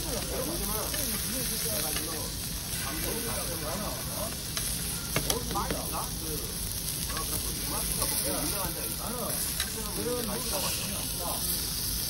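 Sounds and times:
pork sizzling on a grill: 0:00.0 - 0:12.0
metal tongs clicking on grill plate: 0:00.8 - 0:02.2, 0:04.5 - 0:05.8, 0:07.0 - 0:08.2, 0:09.4 - 0:09.9.

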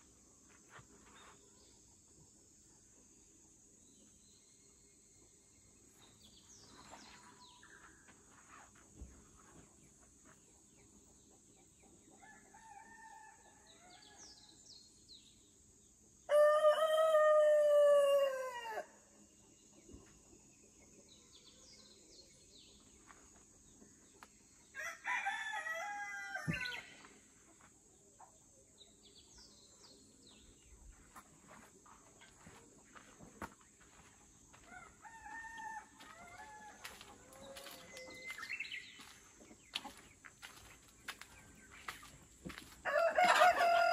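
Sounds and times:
rooster crowing: 0:42.8 - 0:43.9.

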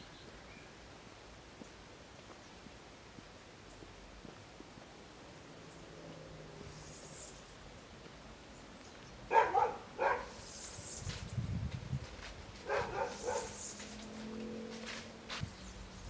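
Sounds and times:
dog barking: 0:09.3 - 0:10.4, 0:12.6 - 0:13.6.

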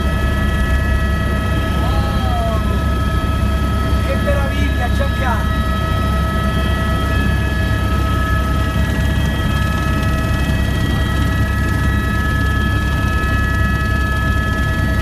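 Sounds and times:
constant whine: 0:00.0 - 0:15.0
helicopter engine and rotor drone: 0:00.0 - 0:15.0.

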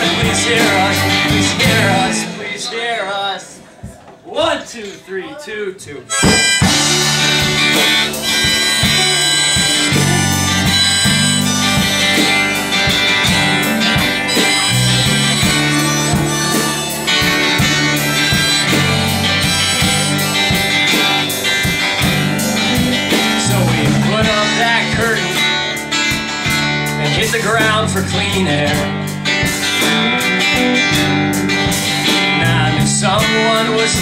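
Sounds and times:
drum kit steady beat: 0:00.0 - 0:02.7, 0:06.1 - 0:34.0
acoustic and electric guitars: 0:00.0 - 0:04.1, 0:06.1 - 0:34.0
lead melody of long notes: 0:06.1 - 0:24.1.

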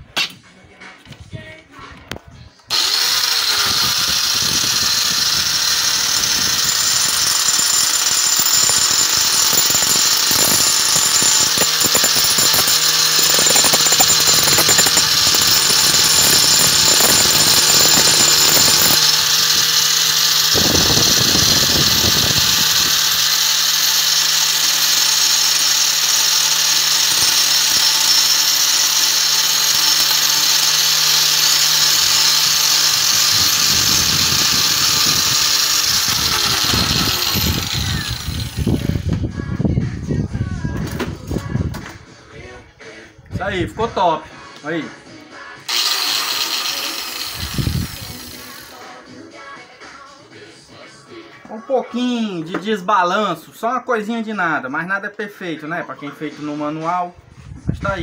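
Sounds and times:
grinding stone rasping: 0:02.7 - 0:39.0, 0:45.7 - 0:48.9
angle grinder whining: 0:02.7 - 0:39.4, 0:45.7 - 0:49.1.

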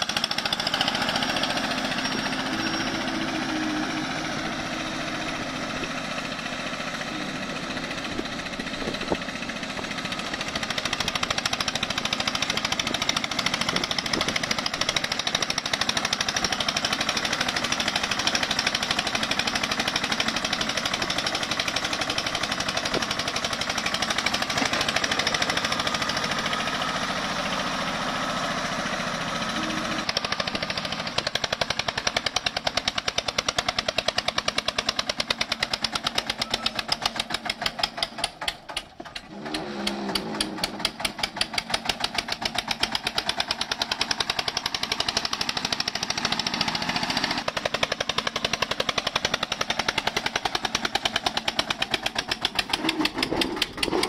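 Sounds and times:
tractor engine under heavy load: 0:00.0 - 0:54.0.

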